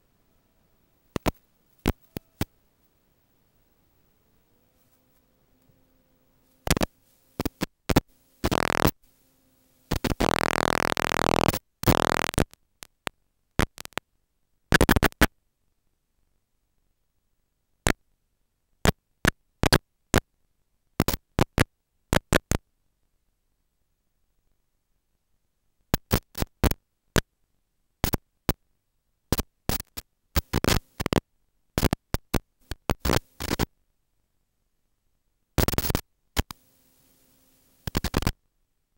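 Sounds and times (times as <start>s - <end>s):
radio static and buzz: 1.1s - 2.6s, 4.8s - 14.0s, 14.7s - 15.3s, 29.3s - 31.2s, 31.8s - 33.7s, 35.6s - 38.4s.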